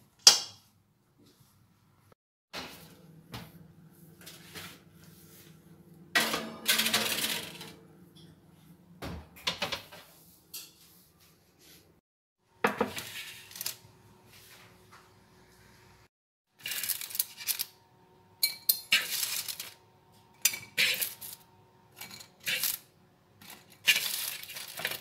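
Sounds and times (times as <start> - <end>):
metal baking tray clattering: 6.2 - 7.8, 20.4 - 21.4, 22.0 - 22.8, 23.4 - 25.0.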